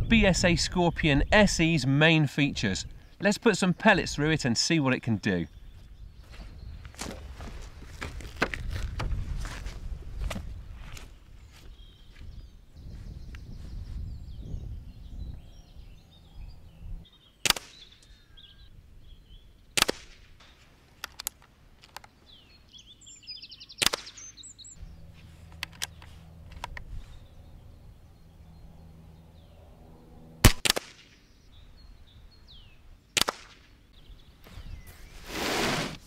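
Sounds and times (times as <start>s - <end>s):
air rifle shots: 17.4s - 17.8s, 19.8s - 20.4s, 23.8s - 24.2s, 30.4s - 31.3s, 33.2s - 33.8s.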